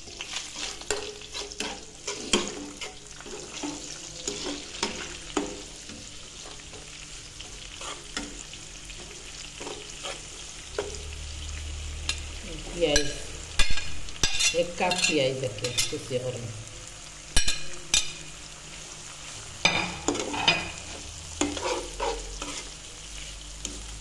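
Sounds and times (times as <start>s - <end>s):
spatula scraping a pan: 0.0s - 11.1s, 12.9s - 16.0s, 17.4s - 24.0s
food sizzling in hot oil: 0.0s - 24.0s.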